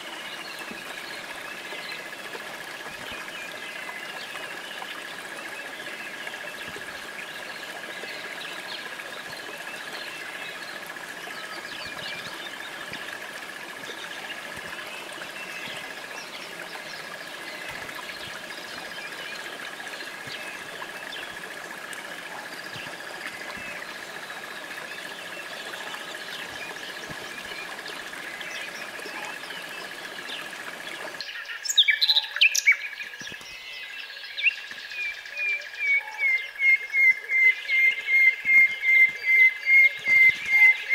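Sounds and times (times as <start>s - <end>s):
bird chirps: 13.8s - 40.9s.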